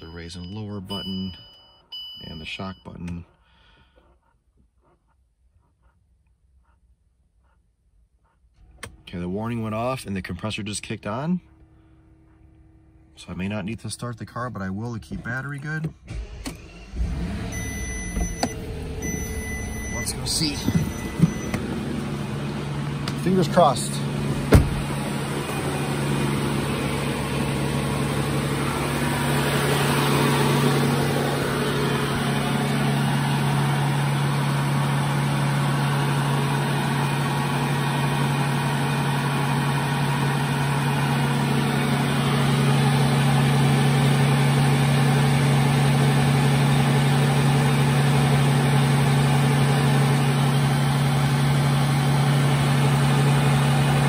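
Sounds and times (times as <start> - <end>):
car engine idling: 7.4 - 54.0
thump: 24.4 - 24.9.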